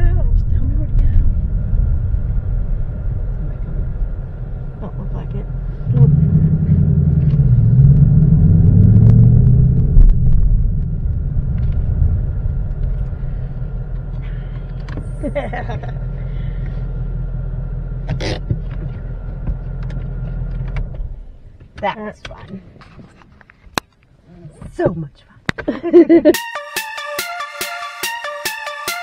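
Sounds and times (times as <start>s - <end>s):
car engine rumble from cabin: 0.0s - 22.8s.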